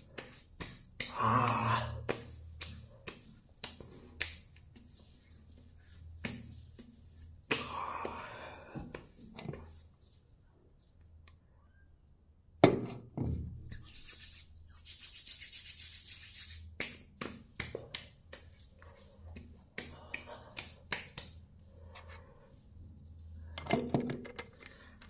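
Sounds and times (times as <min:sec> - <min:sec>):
hand slapping face: 0:00.1 - 0:04.6, 0:07.5 - 0:08.2, 0:16.6 - 0:18.6, 0:19.4 - 0:21.5
quick pats on skin: 0:02.0 - 0:05.0, 0:13.7 - 0:21.5
palms rubbing together: 0:02.0 - 0:07.8, 0:13.7 - 0:23.2.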